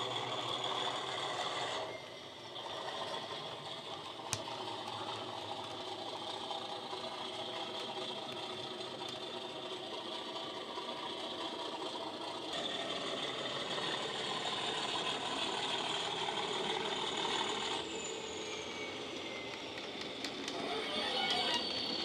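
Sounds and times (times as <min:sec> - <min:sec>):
diesel engine sound from speaker: 0:00.0 - 0:22.0
model train wheels clattering: 0:02.6 - 0:17.8.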